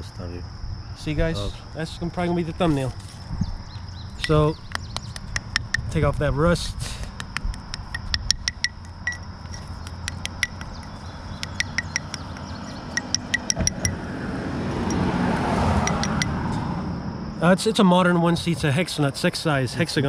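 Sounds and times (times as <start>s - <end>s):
metal clinking on concrete: 7.7s - 14.0s, 15.9s - 16.4s.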